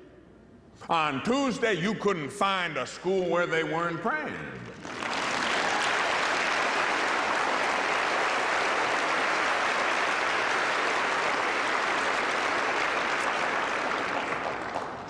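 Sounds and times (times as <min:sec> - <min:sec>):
congregation applauding: 0:04.6 - 0:15.0.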